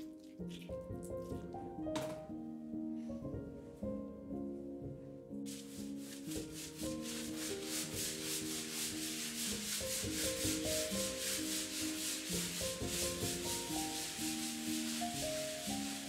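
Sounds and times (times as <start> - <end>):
scrubbing shower tiles by hand: 5.5 - 16.0.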